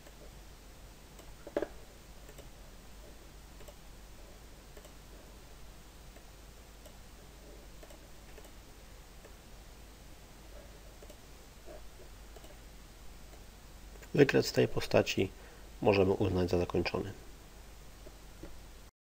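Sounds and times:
low steady hum: 0.0s - 18.9s
computer mouse clicks: 1.2s - 2.5s, 3.6s - 3.8s, 4.7s - 5.0s, 7.8s - 8.6s, 11.0s - 11.2s, 12.3s - 12.6s.

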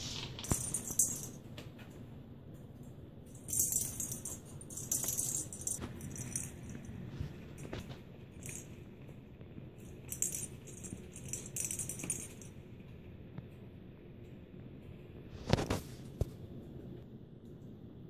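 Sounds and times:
small bell jingling: 0.4s - 1.4s, 3.3s - 7.8s, 8.4s - 8.8s, 9.8s - 12.5s.

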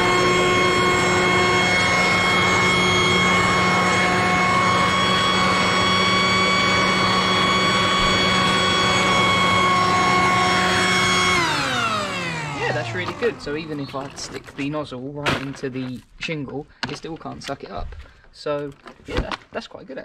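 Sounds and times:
electric blower vac whine: 0.0s - 14.5s.

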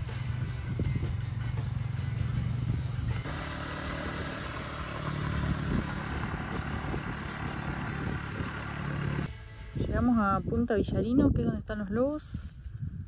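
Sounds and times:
motorcycle engine running: 0.2s - 9.3s.

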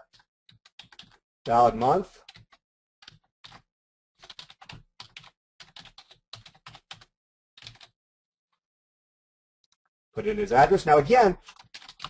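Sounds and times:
keyboard typing: 0.0s - 8.0s, 11.4s - 12.0s.

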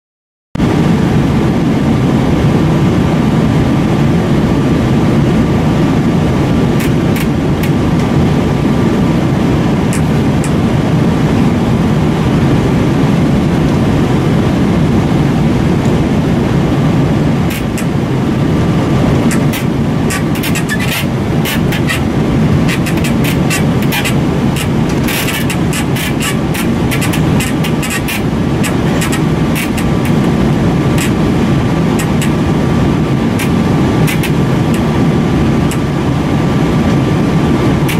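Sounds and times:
airliner cabin roar: 0.6s - 37.9s
cabin creaking and clicking: 17.5s - 18.0s, 18.9s - 34.9s.

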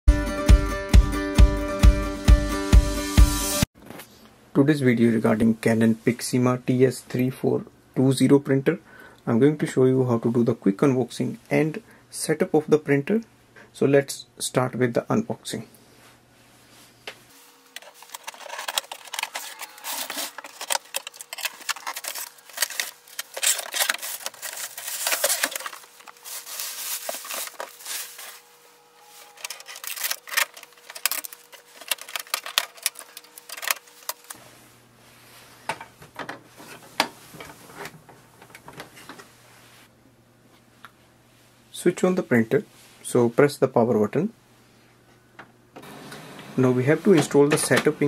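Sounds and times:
packaging rustling: 17.5s - 34.4s.

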